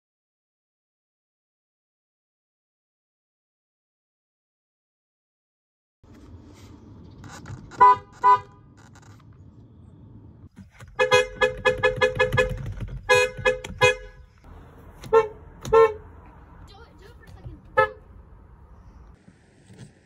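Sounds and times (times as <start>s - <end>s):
car horn honks: 7.7s - 8.7s, 10.8s - 14.4s, 15.0s - 18.2s.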